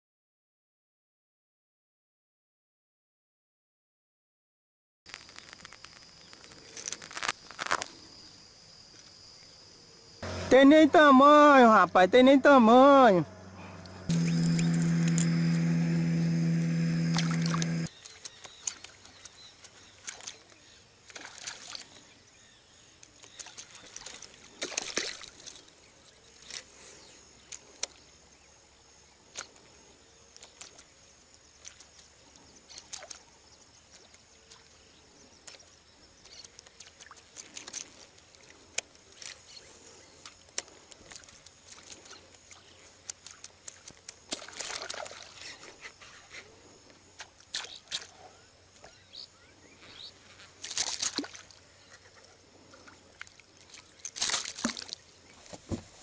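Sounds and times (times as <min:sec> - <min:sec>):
lure splashing on water: 0:13.7 - 0:22.0, 0:23.1 - 0:26.6, 0:40.2 - 0:45.7, 0:47.2 - 0:48.2, 0:49.9 - 0:55.3.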